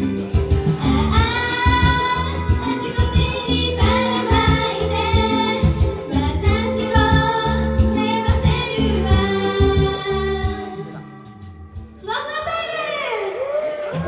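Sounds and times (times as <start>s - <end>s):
loud pop music with bass beat: 0.0s - 11.0s
young women singing: 0.6s - 11.4s.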